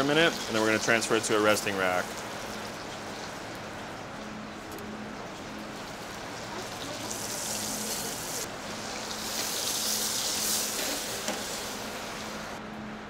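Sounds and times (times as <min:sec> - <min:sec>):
steady low hum: 0:00.0 - 0:13.0
butter sizzling: 0:05.2 - 0:12.6.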